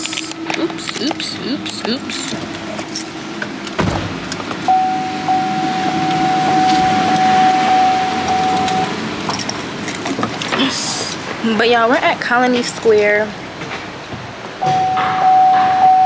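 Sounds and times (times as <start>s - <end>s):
steady car warning tone: 4.6s - 9.6s, 14.6s - 16.0s.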